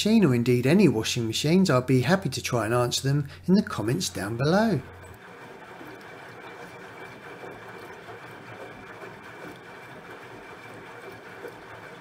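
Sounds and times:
washing machine drum turning: 3.7 - 12.0.

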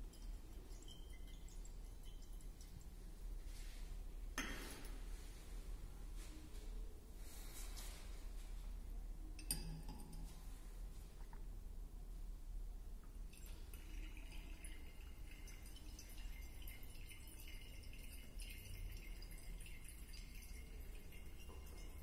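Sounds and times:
faint liquid dripping into flask: 0.0 - 4.9, 13.0 - 22.0
low steady hum: 0.0 - 22.0.

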